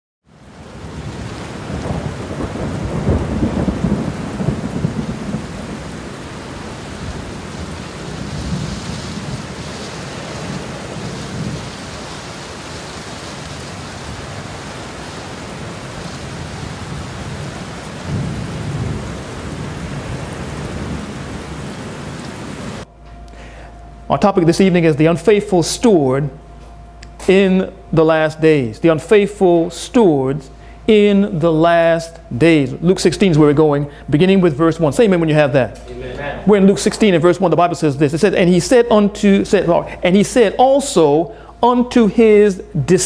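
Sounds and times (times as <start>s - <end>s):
steady rain: 0.3s - 22.9s, 30.6s - 43.0s
thunder rumbling: 0.4s - 22.9s.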